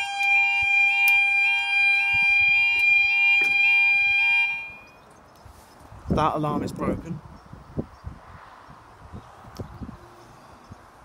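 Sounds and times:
level crossing alarm: 0:00.0 - 0:05.0.

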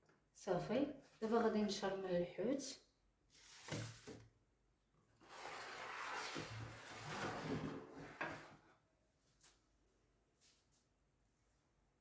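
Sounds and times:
bowl scraping across tabletop: 0:05.2 - 0:08.7.

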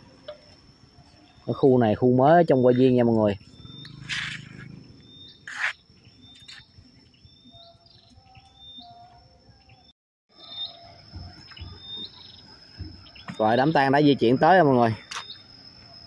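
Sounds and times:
small birds chirping: 0:00.4 - 0:16.0
rustle: 0:03.8 - 0:05.8.

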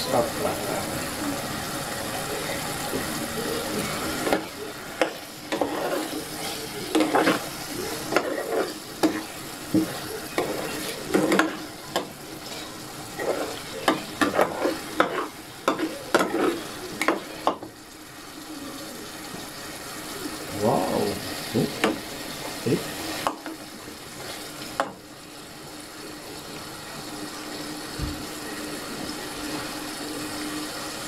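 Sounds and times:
stew sizzling: 0:00.0 - 0:31.0
ladle scraping pot: 0:03.8 - 0:17.6.

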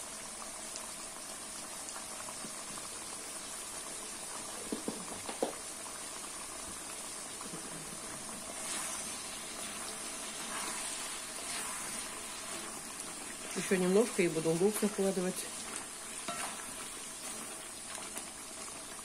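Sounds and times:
meat sizzling and bubbling: 0:00.0 - 0:19.0
wooden spatula stirring meat: 0:07.5 - 0:19.0.

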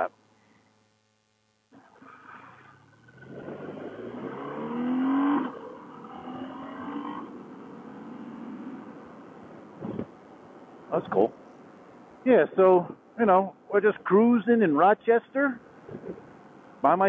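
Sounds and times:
motorcycle accelerating hard: 0:01.8 - 0:09.2.

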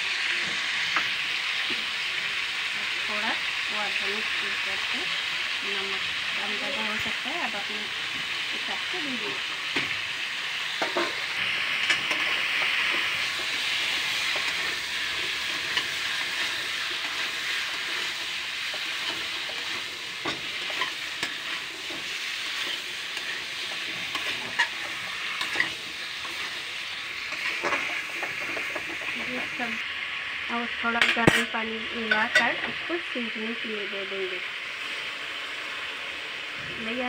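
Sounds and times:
vegetables sizzling in oil: 0:00.0 - 0:37.0
spatula scraping a metal pan: 0:15.4 - 0:26.6.

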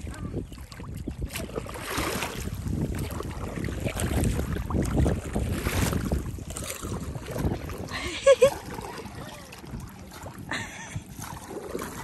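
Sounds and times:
water lapping and splashing: 0:00.0 - 0:12.0
wind buffeting microphone: 0:00.0 - 0:12.0.

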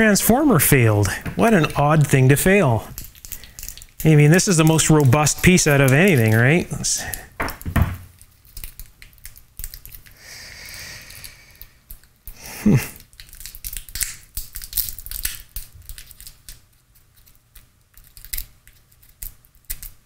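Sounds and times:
small clicks and crackles: 0:02.2 - 0:10.2, 0:11.0 - 0:20.0
knock: 0:07.4 - 0:08.0.

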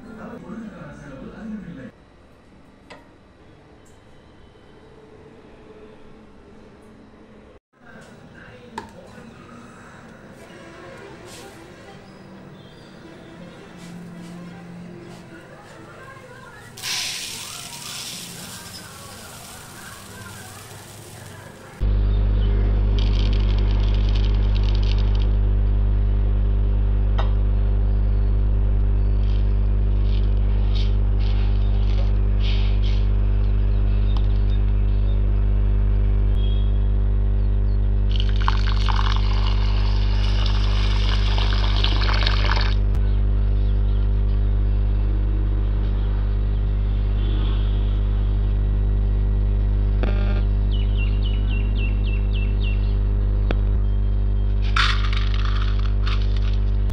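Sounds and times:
low hum: 0:12.0 - 0:56.9
grains rattling into plastic colander: 0:16.8 - 0:21.7, 0:54.8 - 0:56.6
water running into grains: 0:16.8 - 0:21.8, 0:38.1 - 0:42.8, 0:54.8 - 0:56.6.

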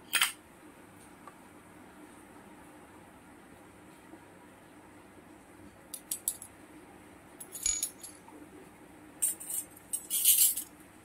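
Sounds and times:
metal toy utensils clinking: 0:07.4 - 0:08.2, 0:09.2 - 0:10.7.

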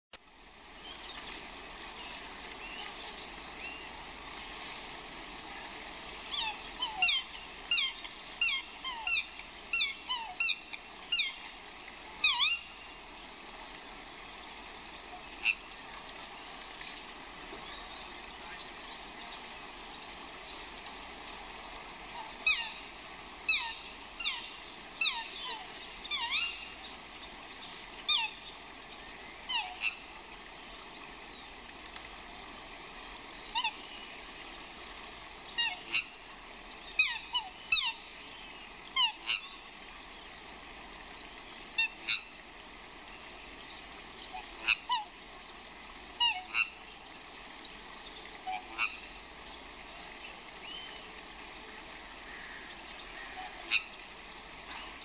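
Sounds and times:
rain hiss: 0:00.1 - 0:55.0
swans calling: 0:06.2 - 0:12.8, 0:21.9 - 0:28.4, 0:33.4 - 0:34.0, 0:35.5 - 0:36.2, 0:38.9 - 0:39.7, 0:41.6 - 0:42.4, 0:46.1 - 0:46.9, 0:48.4 - 0:49.2.

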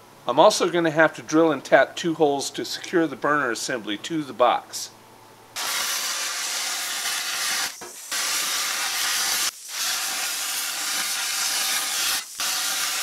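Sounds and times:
plasma cutter hissing: 0:05.6 - 0:13.0.

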